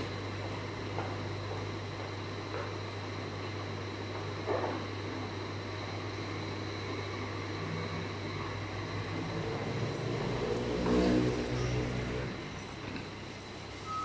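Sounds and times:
steady low hum: 0:00.0 - 0:14.0
engine-like drone: 0:07.6 - 0:13.0.

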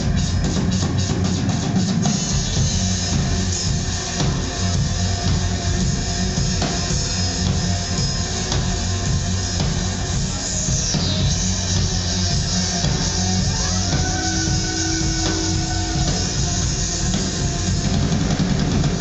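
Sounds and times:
drum kit cymbal wash: 0:00.0 - 0:19.0
instrumental rock band: 0:00.0 - 0:19.0.

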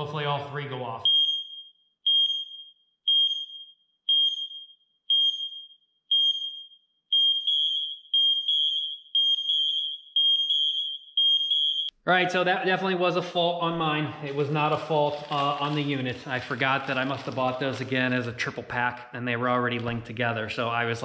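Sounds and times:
high-pitched smoke alarm beeps: 0:01.0 - 0:11.9.

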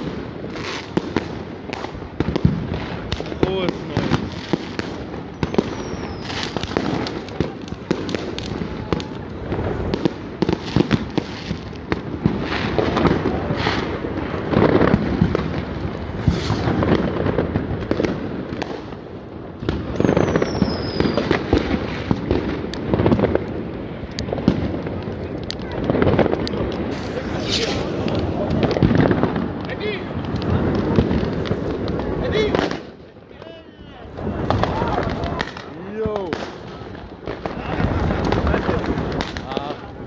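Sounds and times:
fireworks bangs and crackles: 0:00.0 - 0:40.0
falling firework whistle: 0:05.2 - 0:07.0, 0:16.2 - 0:16.9, 0:19.9 - 0:21.5, 0:26.9 - 0:28.8.

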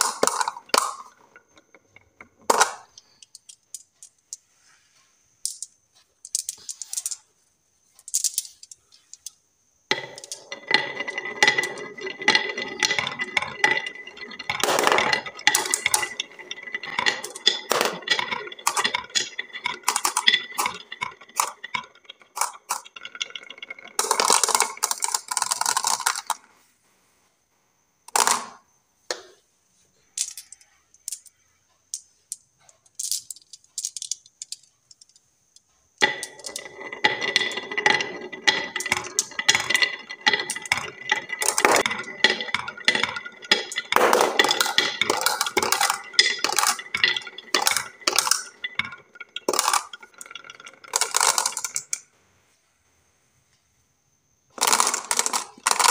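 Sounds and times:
marbles rolling on wooden run: 0:00.0 - 0:26.6, 0:28.1 - 0:29.4, 0:30.0 - 0:52.1, 0:54.5 - 0:55.9.

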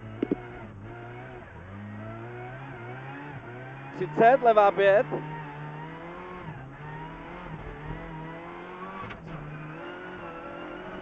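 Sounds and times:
car engine accelerating: 0:00.0 - 0:11.0
gear change click: 0:00.2 - 0:00.4.

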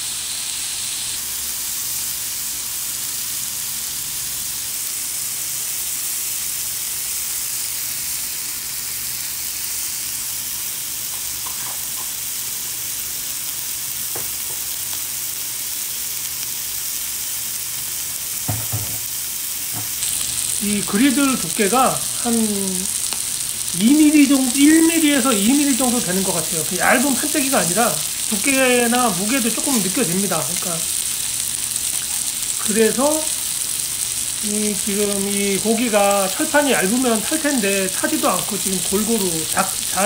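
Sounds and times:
meat sizzling on a griddle: 0:00.0 - 0:40.0
loud knock: 0:18.4 - 0:19.0.

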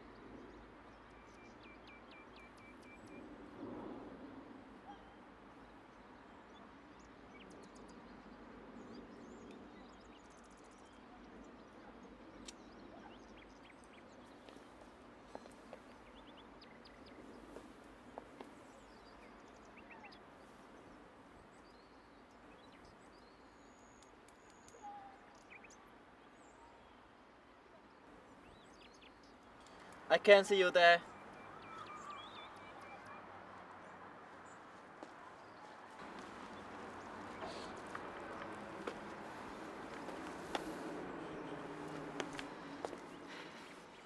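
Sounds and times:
bird chirps and calls: 0:28.4 - 0:33.3, 0:36.0 - 0:44.0.

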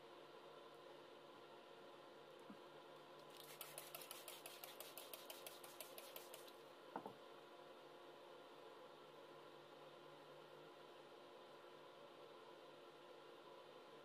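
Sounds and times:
faint rapid clicking: 0:03.2 - 0:06.6.

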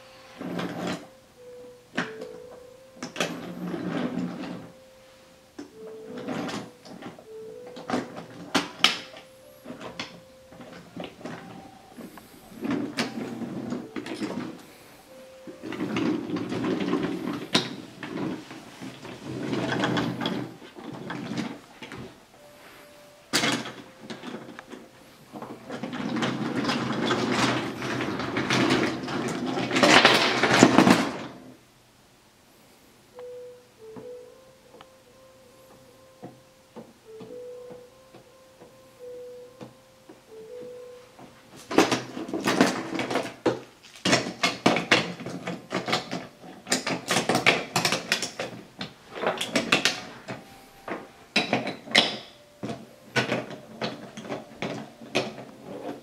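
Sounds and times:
wooden toy trains rolling: 0:07.8 - 0:14.6, 0:15.5 - 0:22.2, 0:23.3 - 0:31.4, 0:41.7 - 0:56.0.

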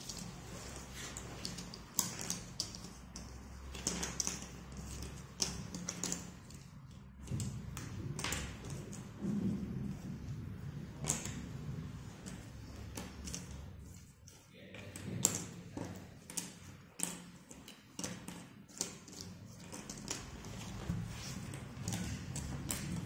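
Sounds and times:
puzzle pieces clicking and tapping: 0:00.0 - 0:09.2, 0:12.2 - 0:13.6, 0:15.0 - 0:23.0
cardboard rustling: 0:19.6 - 0:23.0.

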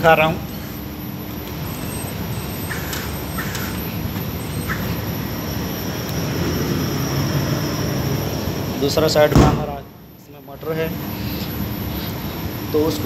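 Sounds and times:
fan motor hum with high whine: 0:00.0 - 0:13.0.

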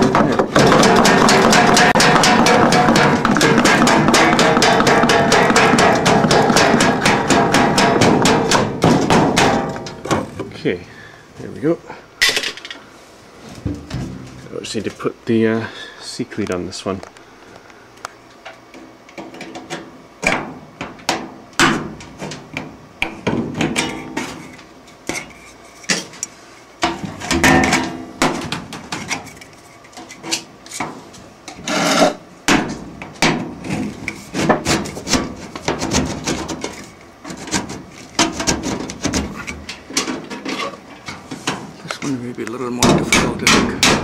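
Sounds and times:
sheet metal knocking and scraping: 0:00.0 - 0:10.6, 0:13.6 - 0:14.6, 0:26.8 - 0:41.7, 0:42.8 - 0:44.0.

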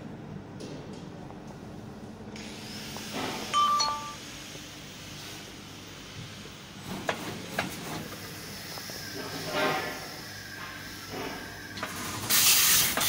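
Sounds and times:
hiss: 0:02.4 - 0:03.5, 0:04.2 - 0:13.0
two-note electronic beep: 0:03.6 - 0:04.2.

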